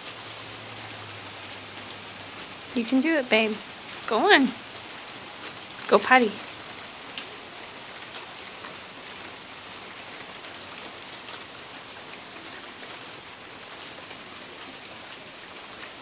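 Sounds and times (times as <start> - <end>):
rain on wet concrete: 0.0 - 16.0.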